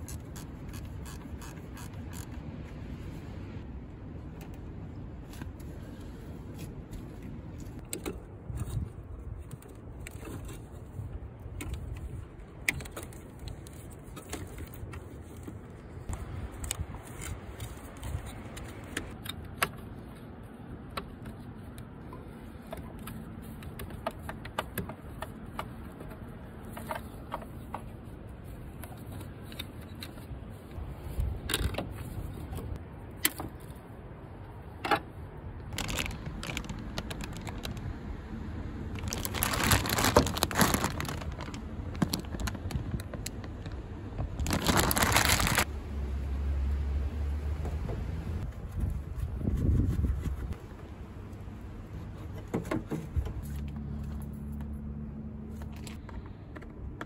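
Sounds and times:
rustling scrapes: 39.0s - 45.7s, 48.4s - 50.8s.

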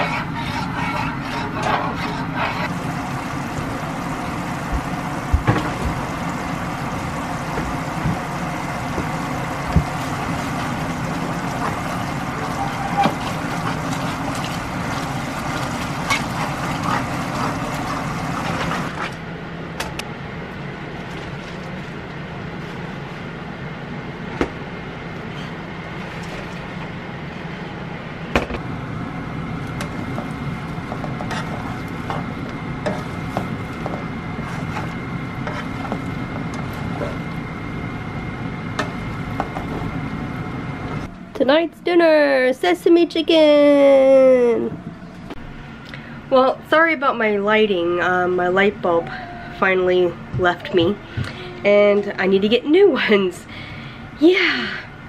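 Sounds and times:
sauce bubbling and sizzling in a pan: 2.6s - 18.9s.

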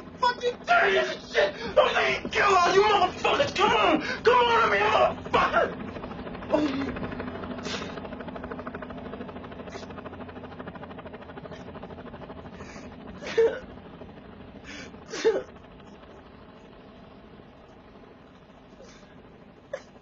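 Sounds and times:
low steady hum: 0.0s - 20.0s
man crying: 0.2s - 5.9s, 6.5s - 7.1s, 13.2s - 13.8s, 14.8s - 15.5s
gasping sobs: 1.3s - 1.9s, 3.8s - 4.3s, 6.5s - 8.0s, 12.6s - 13.7s, 14.7s - 15.5s.

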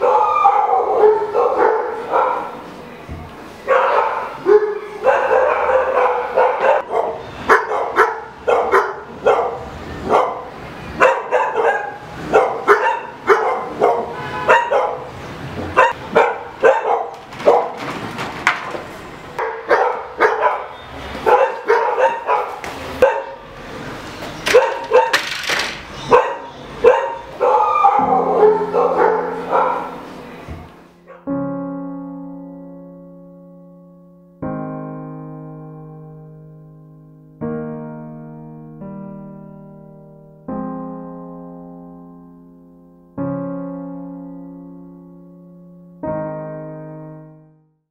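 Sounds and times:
dog barking: 0.0s - 2.7s, 3.6s - 15.2s, 15.8s - 17.9s, 19.4s - 23.5s, 24.5s - 25.3s, 26.0s - 30.0s, 31.1s - 31.3s
piano music: 0.0s - 17.8s, 18.7s - 47.8s.

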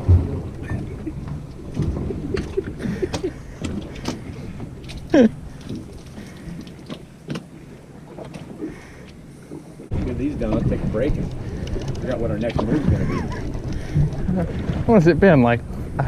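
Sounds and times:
splashing water patter: 0.0s - 7.6s
knocks and clatter on boat deck: 0.0s - 16.0s.

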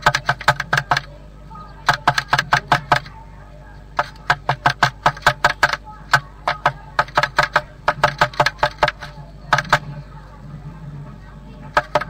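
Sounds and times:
bird pecking wood taps: 0.0s - 1.1s, 1.8s - 3.1s, 4.0s - 9.8s, 11.7s - 12.0s
steady low hum: 0.0s - 12.0s.

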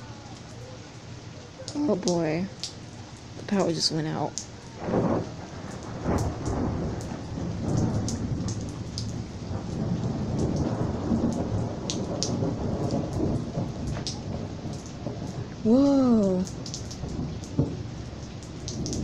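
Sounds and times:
rain falling: 0.0s - 19.0s
rolling thunder: 4.7s - 19.0s.

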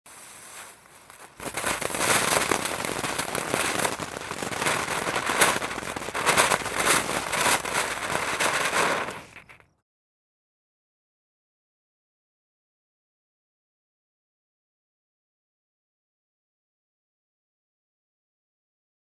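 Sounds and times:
faint hiss: 0.1s - 9.6s
firework fountain crackling: 0.1s - 9.7s.

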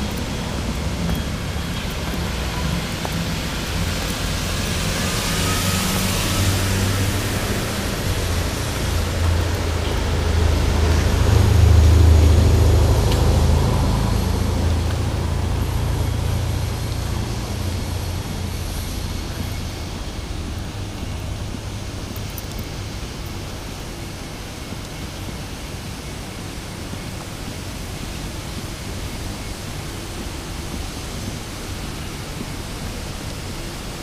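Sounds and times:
vehicle engine rumble passing: 0.0s - 24.2s.

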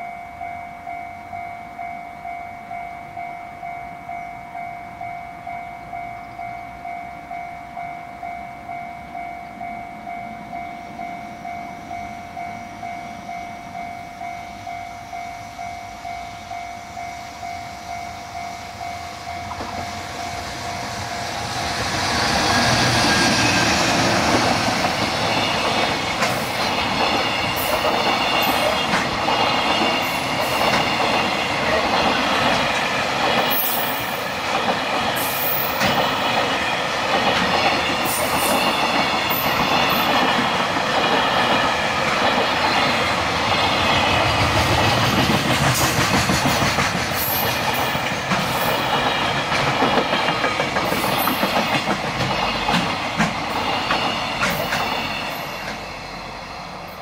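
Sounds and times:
freight train rumbling past: 0.0s - 57.0s
wheels clacking over rail joints: 18.8s - 56.0s.

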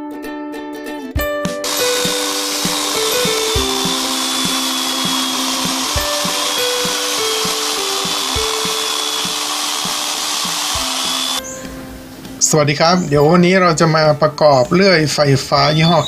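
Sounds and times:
background music: 0.0s - 15.7s
electric chainsaw cutting log: 1.6s - 11.5s.

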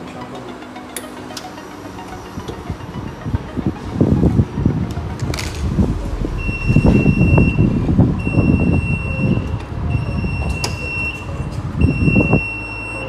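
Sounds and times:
low rumbling noise: 2.8s - 12.2s
high-pitched alarm beeping: 5.8s - 13.0s.

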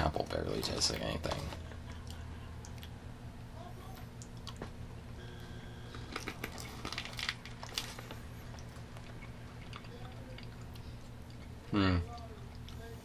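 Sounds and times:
steady low hum: 0.0s - 13.0s
small clicks and crackles: 5.9s - 10.9s
person chewing gummy candy: 5.9s - 12.8s.

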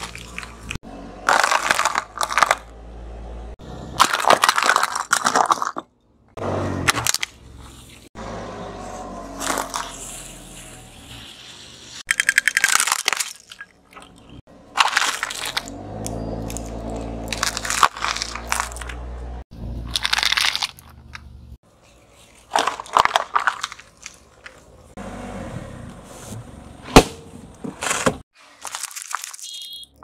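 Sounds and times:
tyre crushing plastic objects: 0.0s - 2.7s, 4.0s - 5.9s, 14.7s - 15.7s, 16.5s - 19.0s, 22.5s - 24.7s, 27.0s - 29.5s
low engine hum: 2.0s - 4.0s, 15.5s - 19.9s.

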